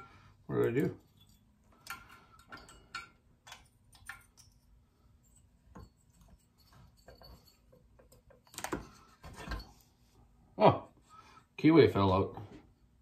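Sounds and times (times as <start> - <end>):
metal parts clicking and tapping: 0.6 - 9.8.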